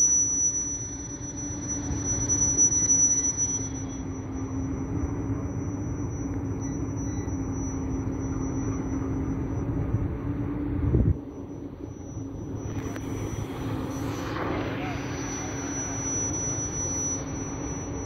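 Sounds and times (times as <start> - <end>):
diesel locomotive engine drone: 0.0 - 18.0
thin high whine: 0.0 - 18.0.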